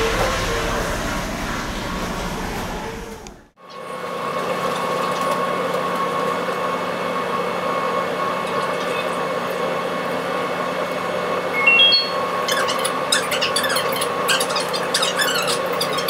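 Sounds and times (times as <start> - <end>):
ship engines droning: 0.0 - 3.6.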